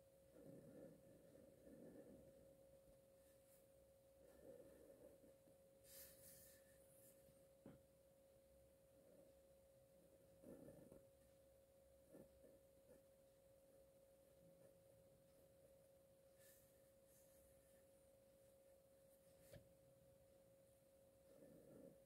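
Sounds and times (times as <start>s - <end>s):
faint steady tone: 0.0s - 22.0s
marker strokes on paper: 5.8s - 7.3s.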